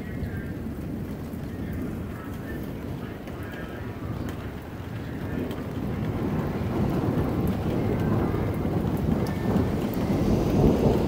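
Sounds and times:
heavy rain falling: 0.0s - 11.0s
thunder rumbling: 0.0s - 11.0s.

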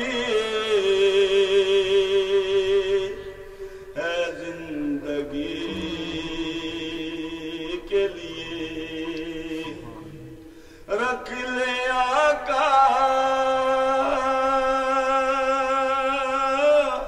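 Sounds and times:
man chanting in long notes: 4.0s - 17.0s.

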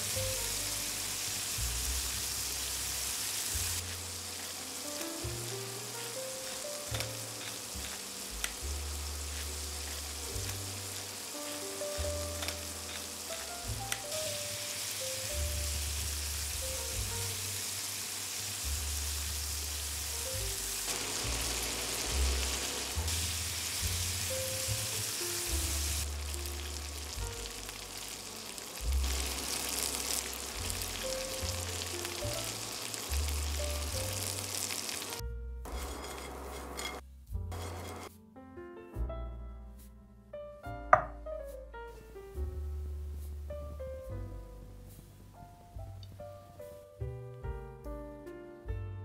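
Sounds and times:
food sizzling in hot oil: 0.0s - 38.1s.

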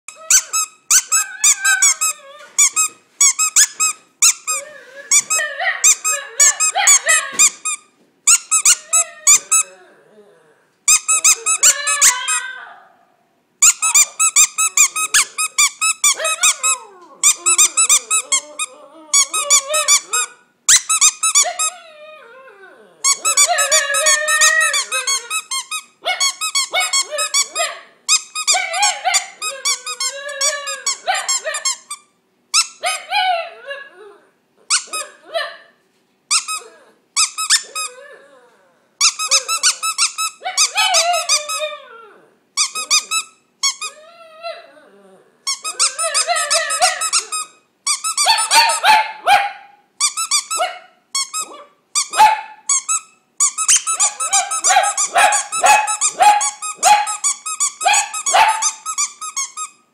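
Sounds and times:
small dog howling and whining: 0.1s - 3.0s, 3.6s - 7.6s, 8.4s - 31.9s, 32.6s - 35.7s, 36.4s - 49.0s, 50.3s - 52.7s, 53.6s - 59.2s
high repeated squeaks: 52.7s - 59.8s.

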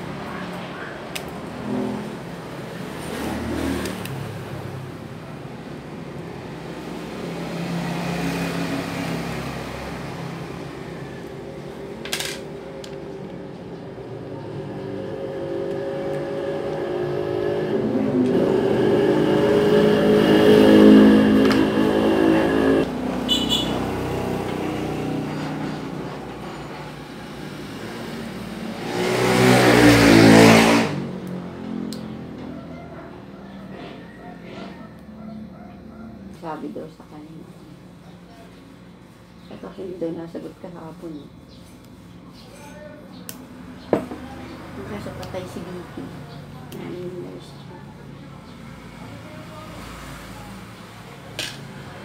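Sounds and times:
vehicle engine passing by: 0.0s - 12.0s, 13.1s - 36.9s.

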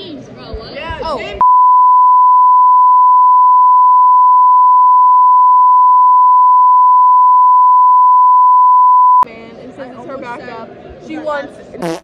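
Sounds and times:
censor bleep tone: 1.4s - 9.3s.

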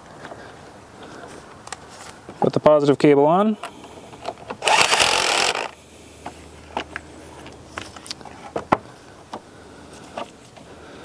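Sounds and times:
cordless ratchet spinning: 4.6s - 5.8s.

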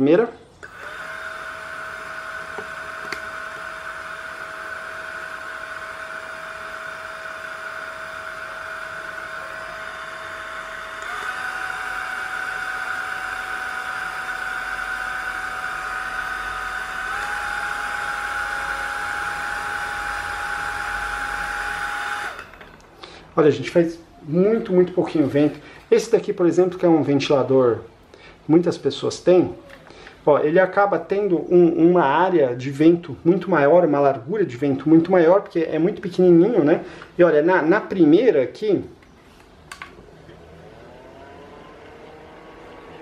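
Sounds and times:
desk fan motor whine: 0.6s - 22.8s, 39.7s - 43.0s.

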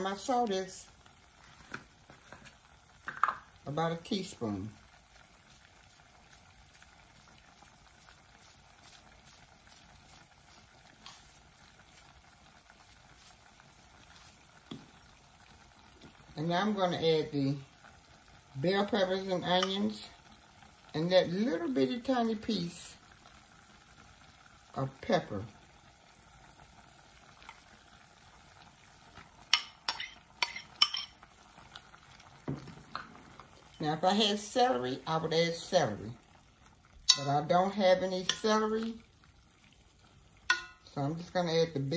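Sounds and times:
food bubbling in a pot: 0.0s - 41.9s
metal utensil clinking on cookware: 29.5s - 31.2s, 37.1s - 37.5s, 40.5s - 40.8s.

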